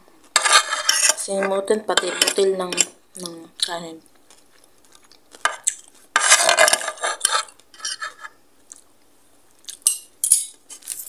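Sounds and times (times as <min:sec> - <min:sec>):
cutlery scraping on plate: 0:00.4 - 0:02.9, 0:06.2 - 0:08.4.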